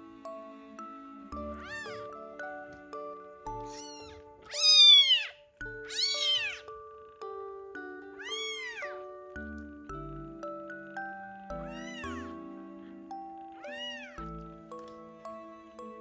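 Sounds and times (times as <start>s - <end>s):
gentle background music: 0.0s - 16.0s
kitten meowing: 1.5s - 2.1s, 3.6s - 6.7s, 8.2s - 9.1s, 11.6s - 12.4s, 13.6s - 14.3s.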